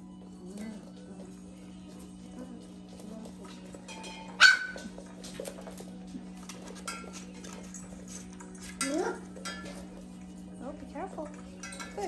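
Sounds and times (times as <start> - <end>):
puppy yelp: 4.4 - 4.9
chains clinking: 6.9 - 9.8
metallic clank with ringing: 8.8 - 9.8, 11.6 - 12.0.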